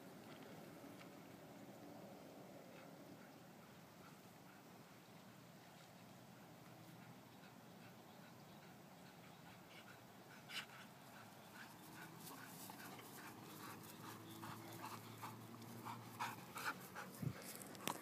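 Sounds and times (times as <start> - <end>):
dog panting: 6.8 - 18.0.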